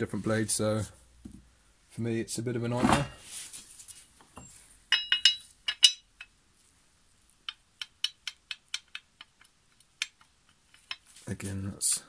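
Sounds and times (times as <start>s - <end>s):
metal blade clinking: 4.9s - 6.1s.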